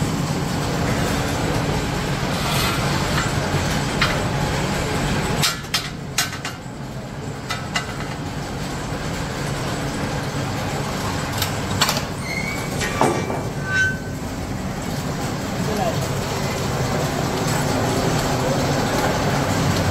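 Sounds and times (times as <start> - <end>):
metallic ring: 13.4 - 14.2.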